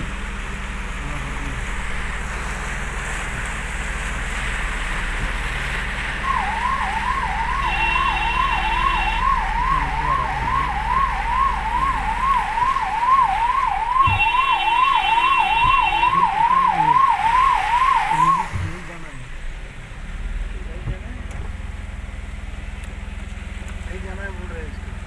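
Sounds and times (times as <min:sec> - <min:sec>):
low engine rumble: 0:00.0 - 0:25.0
police siren warbling: 0:06.2 - 0:18.8.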